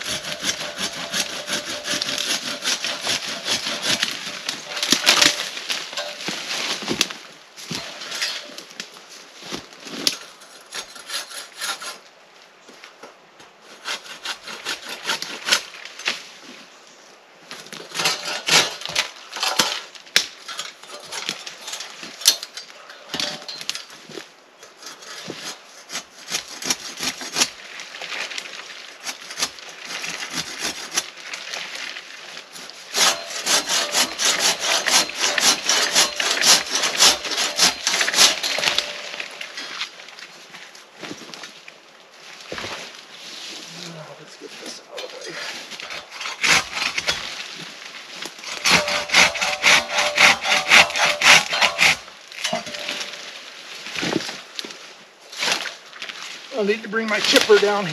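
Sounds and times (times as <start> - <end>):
hand saw rasping through wood: 0.0 - 5.5, 10.6 - 12.0, 13.7 - 15.6, 17.9 - 18.9, 24.8 - 27.5, 29.1 - 31.0, 32.9 - 39.4, 45.8 - 47.2, 48.4 - 53.1.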